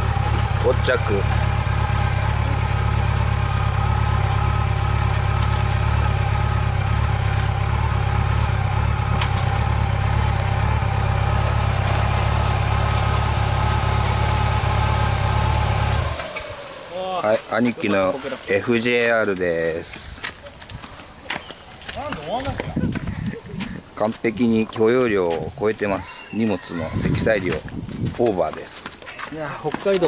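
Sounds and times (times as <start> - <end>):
motorcycle engine idling: 0.0 - 26.1.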